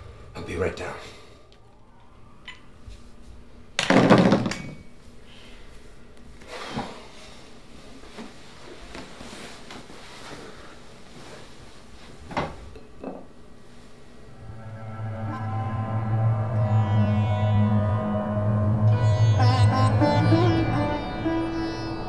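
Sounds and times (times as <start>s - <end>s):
loud knock with clatter: 3.8s - 4.8s
rustling: 7.7s - 12.7s.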